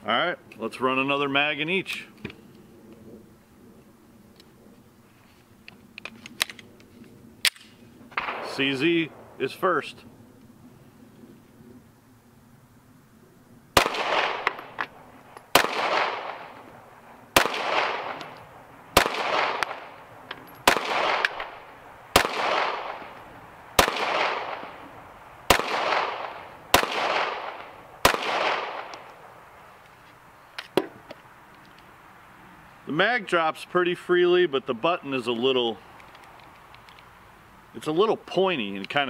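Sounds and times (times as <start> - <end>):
pistol shots echoing: 8.2 - 9.5, 13.8 - 14.9, 15.5 - 16.7, 17.3 - 29.3.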